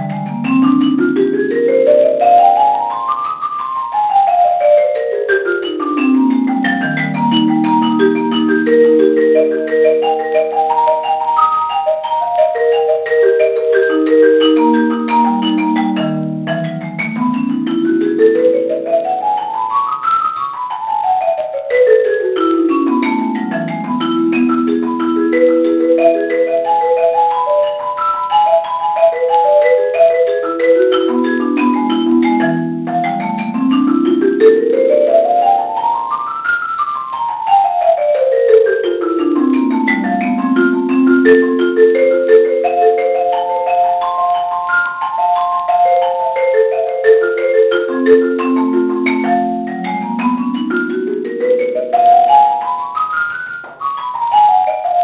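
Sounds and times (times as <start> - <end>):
marimba playing scales: 0.0 - 55.0.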